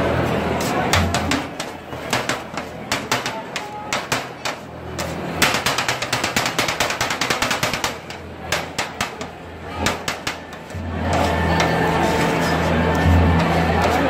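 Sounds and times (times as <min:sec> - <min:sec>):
steel blades striking metal griddle: 0:00.6 - 0:14.0.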